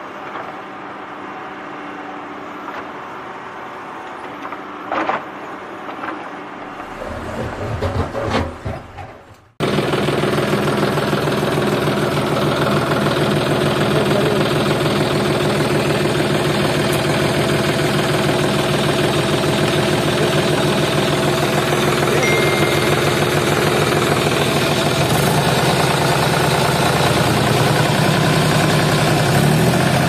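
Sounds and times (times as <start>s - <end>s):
tractor engine running: 6.7s - 30.0s.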